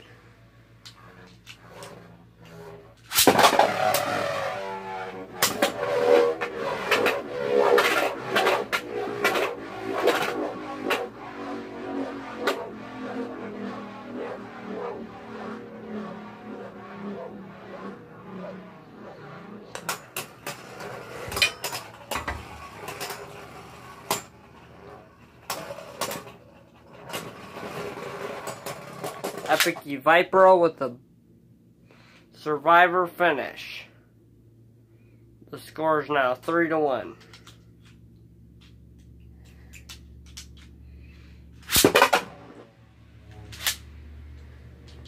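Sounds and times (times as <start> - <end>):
spinning tops whirring: 0.7 - 29.8.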